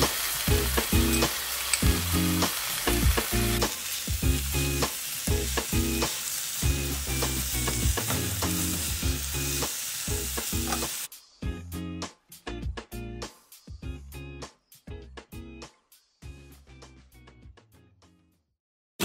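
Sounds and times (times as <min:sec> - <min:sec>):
food sizzling in a wok: 0:00.0 - 0:11.2
utensils clicking against pan: 0:00.6 - 0:02.0, 0:10.5 - 0:11.0.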